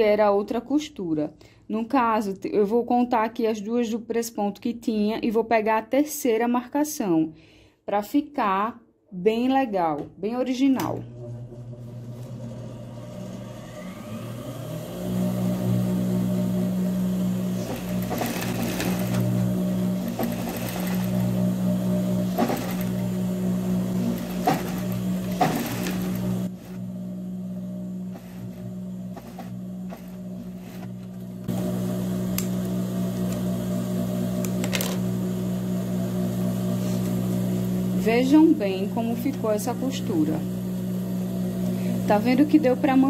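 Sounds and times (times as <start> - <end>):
sewing machine motor hum: 10.8 - 43.0.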